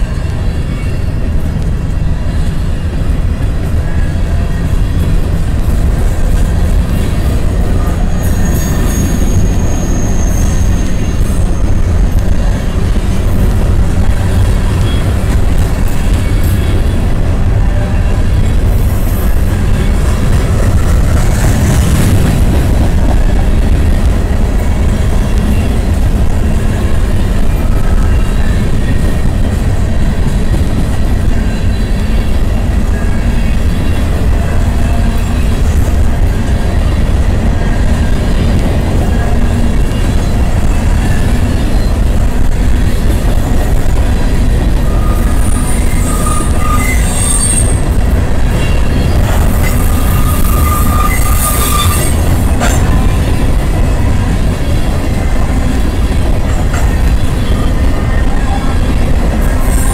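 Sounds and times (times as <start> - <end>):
steel wheels rumbling on rails: 0.0 - 59.9
high wheel squeals: 6.9 - 13.3, 44.8 - 53.1.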